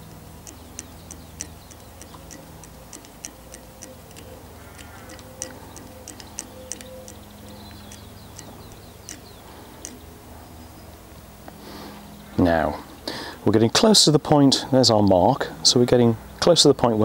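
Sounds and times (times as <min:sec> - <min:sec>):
thread winding with light ticks: 0:00.0 - 0:10.2.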